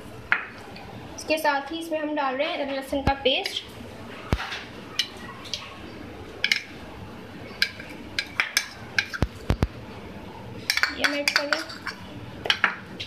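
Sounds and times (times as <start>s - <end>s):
metal spoon scraping a dish: 10.7s - 12.1s.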